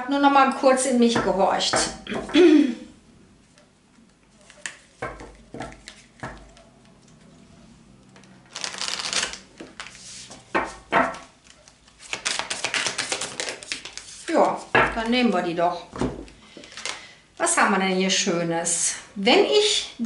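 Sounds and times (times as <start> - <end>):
deck of cards shuffling: 4.3 - 7.2, 8.1 - 10.5, 11.4 - 14.7
cards tapping and flicking: 10.6 - 14.0.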